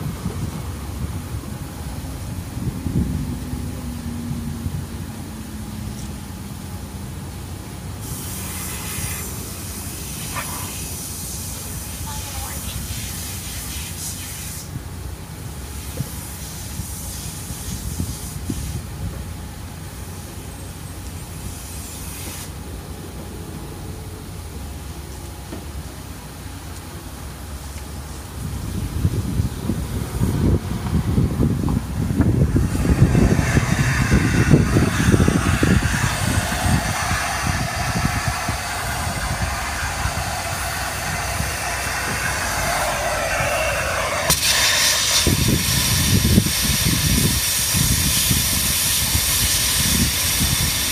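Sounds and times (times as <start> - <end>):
vacuum suction through hose: 32.1 - 50.9.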